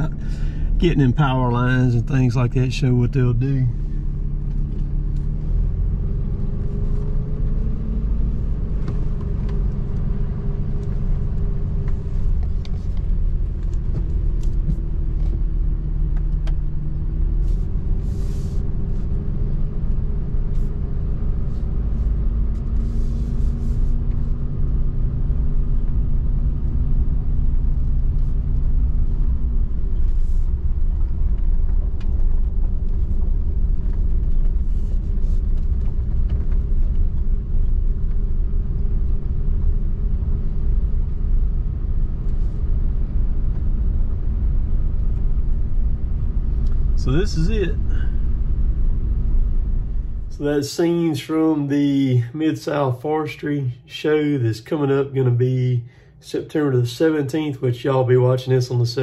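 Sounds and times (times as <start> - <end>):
truck engine hum: 0.0 - 59.0
tyre rumble on dirt road: 25.9 - 50.3.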